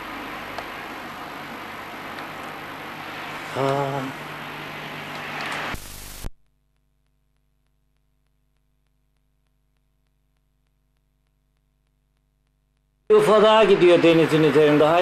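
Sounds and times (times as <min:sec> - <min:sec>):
loud burst of static: 0:00.0 - 0:06.4, 0:13.1 - 0:15.0
faint steady hum: 0:00.0 - 0:15.0
microphone hiss: 0:00.0 - 0:15.0.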